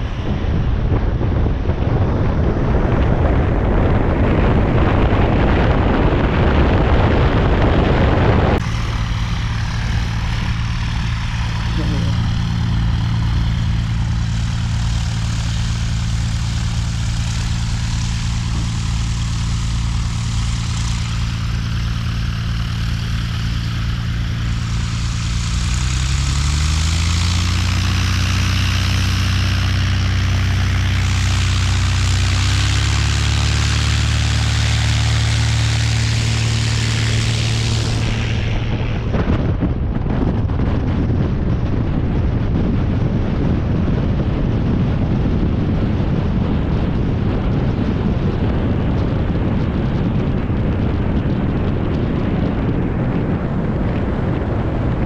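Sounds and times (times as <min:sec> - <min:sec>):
rushing noise: 0:00.0 - 0:41.0
propeller plane engine running: 0:00.0 - 0:55.0.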